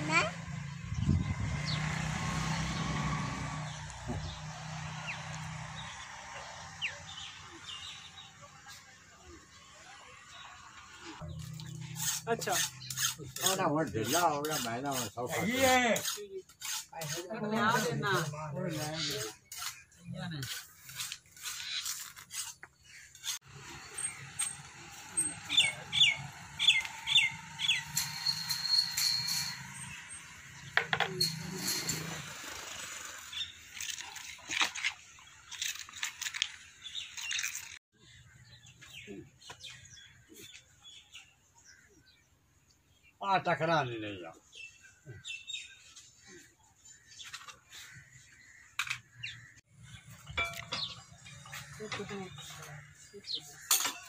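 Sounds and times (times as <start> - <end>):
bird chirping: 25.2 - 32.2, 44.4 - 54.0
faint birds chirping: 35.1 - 54.0.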